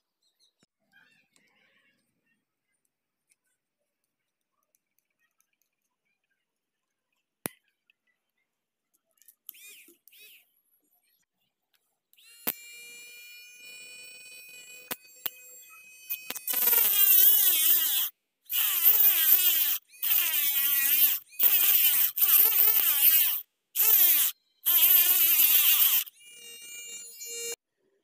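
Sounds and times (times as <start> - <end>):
motor whining freely: 12.2 - 27.6
rotary tool cutting plastic pipe: 12.2 - 27.6.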